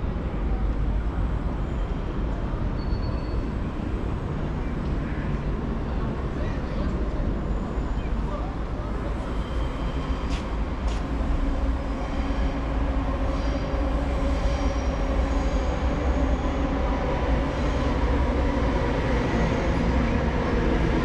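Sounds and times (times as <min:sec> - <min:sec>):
train rumbling: 0:00.0 - 0:21.0.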